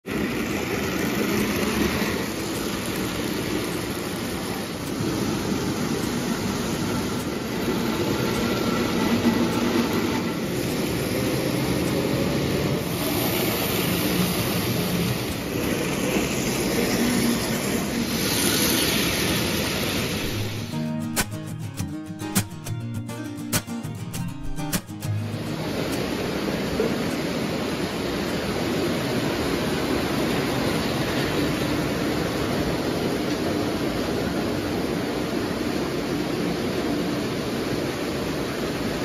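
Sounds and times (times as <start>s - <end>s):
toy train motor whir: 12.9s - 20.7s.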